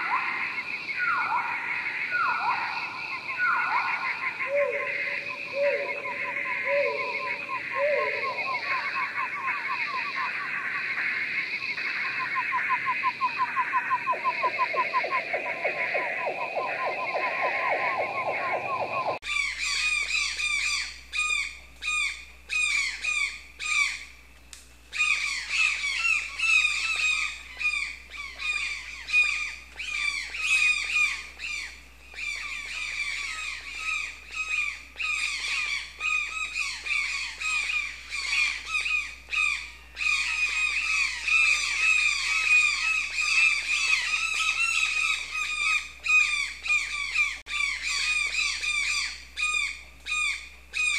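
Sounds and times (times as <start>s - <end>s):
low pulsing frog calls: 0.0s - 24.1s.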